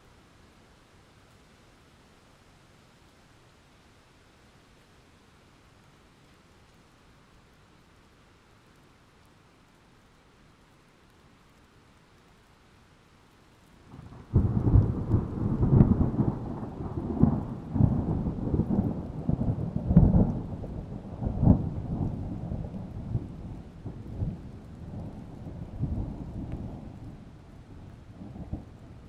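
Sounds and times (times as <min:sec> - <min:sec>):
rain: 0:00.0 - 0:29.0
thunder rumbling: 0:13.9 - 0:29.0.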